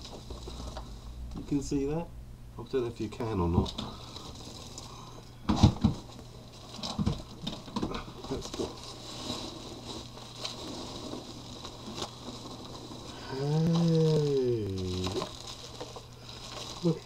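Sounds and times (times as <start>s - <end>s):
packing peanuts and bubble wrap rustling: 0.0s - 1.6s, 3.5s - 17.0s
man's drawn-out vocal sound: 13.2s - 15.2s.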